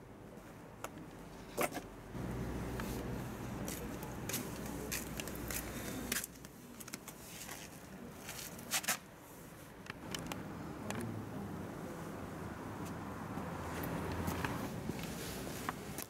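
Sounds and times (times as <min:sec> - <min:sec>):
low steady rumble: 0:02.0 - 0:05.3
footsteps on pavement: 0:03.6 - 0:09.0.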